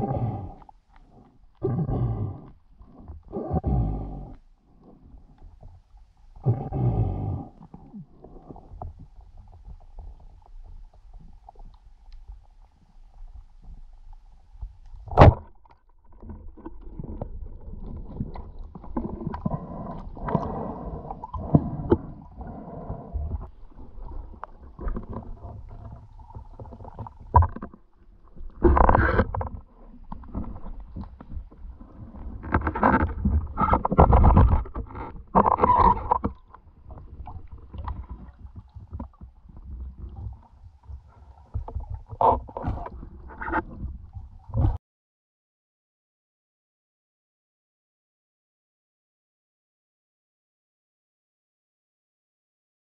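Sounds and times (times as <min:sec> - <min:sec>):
water rushing underwater: 0:06.4 - 0:44.8.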